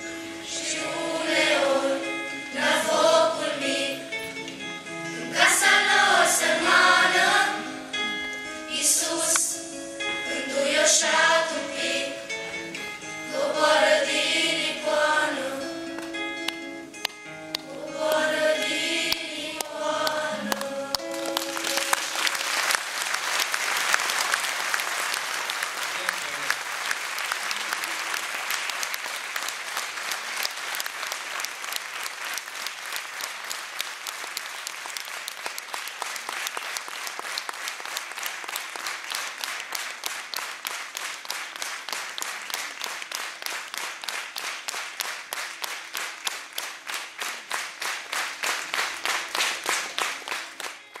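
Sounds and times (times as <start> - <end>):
rhythmic clapping in unison: 15.8 - 51.0
audience applauding: 19.1 - 51.0.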